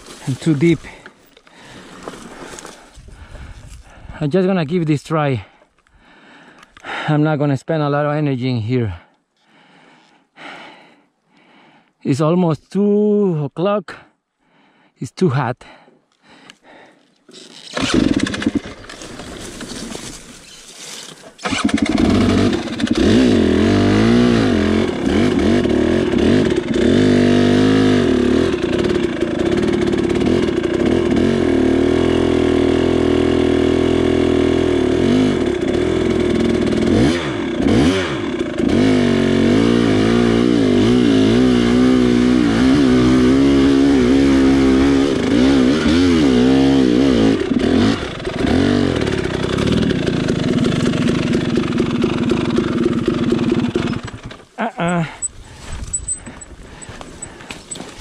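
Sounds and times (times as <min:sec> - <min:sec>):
dirt bike engine revving: 0:17.7 - 0:20.2, 0:21.4 - 0:58.0.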